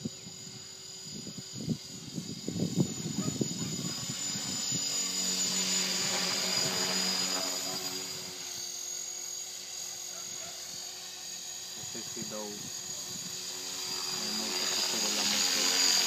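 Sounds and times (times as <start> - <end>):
rc helicopter whine and rotor whir: 0.0 - 16.0.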